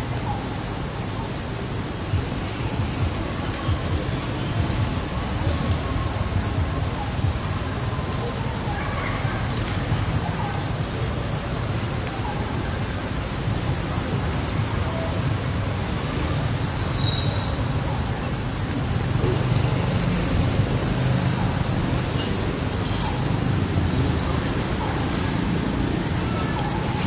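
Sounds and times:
low rumble of distant traffic: 0:00.0 - 0:27.0.

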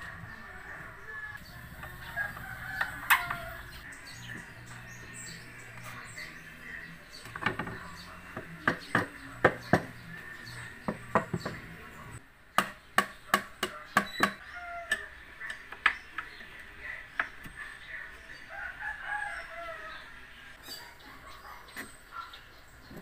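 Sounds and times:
hammer knocking on wooden board: 0:08.4 - 0:10.0, 0:10.8 - 0:11.6.

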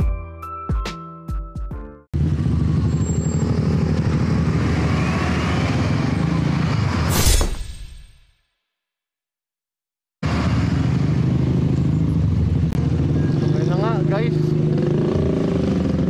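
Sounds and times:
motorcycle engine: 0:02.2 - 0:07.0, 0:10.2 - 0:16.0.

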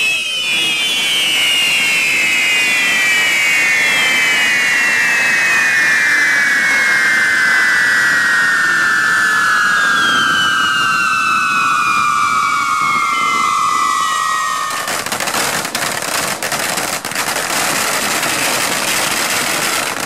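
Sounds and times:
shrill falling whistle: 0:00.0 - 0:15.2
fireworks rushing hiss: 0:00.0 - 0:20.0.

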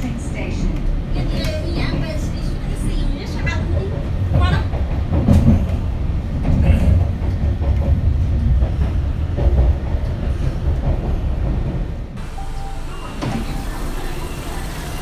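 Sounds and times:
metro train rumble: 0:00.0 - 0:15.0.

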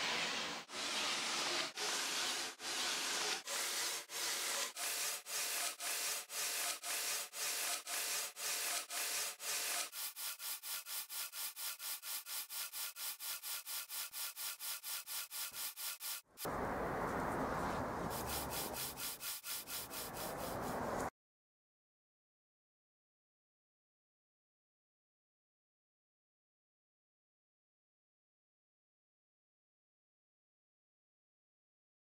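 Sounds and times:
rhythmic rasping sawing strokes: 0:00.7 - 0:16.3, 0:18.0 - 0:21.1.

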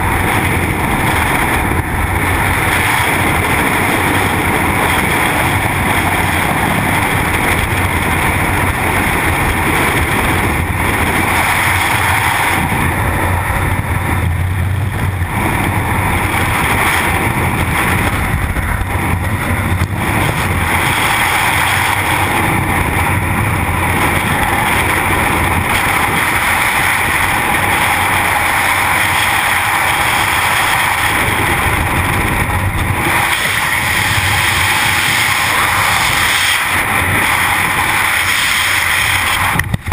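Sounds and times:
wind buffeting camera microphone: 0:00.0 - 0:39.9.

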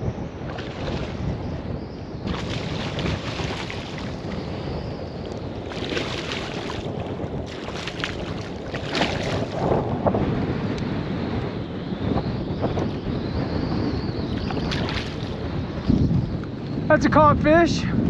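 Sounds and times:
wind buffeting microphone: 0:00.0 - 0:18.0
fish splashing at water surface: 0:02.3 - 0:04.3, 0:05.7 - 0:09.6.

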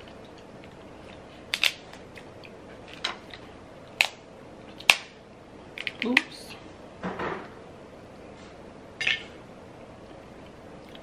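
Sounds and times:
crab shells cracking: 0:00.0 - 0:05.1, 0:05.7 - 0:06.3.

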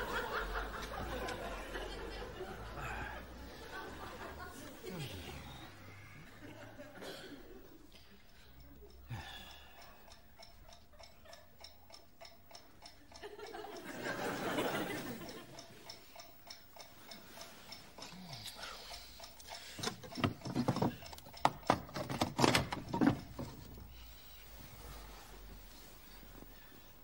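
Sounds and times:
alarm clock ticking: 0:07.5 - 0:24.0
bedclothes rustling: 0:22.6 - 0:27.0.

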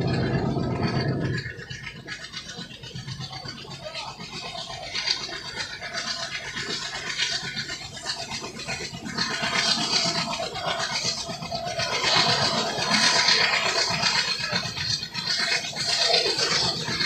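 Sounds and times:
low steady hum: 0:00.0 - 0:02.3
train wheels rattling on rails: 0:00.0 - 0:17.0.

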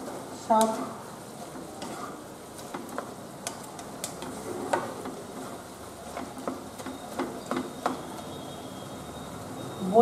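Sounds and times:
spatula scraping a pan: 0:01.8 - 0:08.6.

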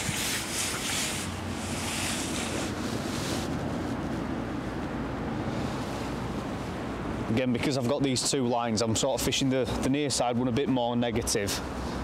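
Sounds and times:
wind on microphone: 0:00.0 - 0:04.7.

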